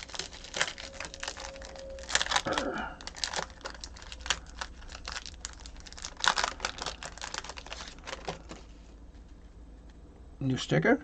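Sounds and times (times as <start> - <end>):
card pack wrapper crinkling: 0.0 - 8.8.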